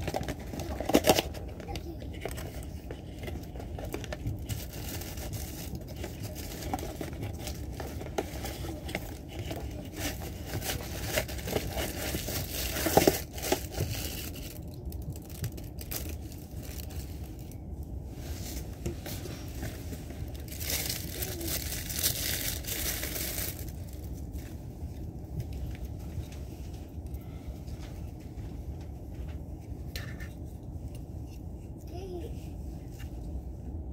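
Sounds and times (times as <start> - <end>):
paper and package rustling: 0.0 - 17.6, 18.4 - 24.6
train rumble: 0.0 - 33.9.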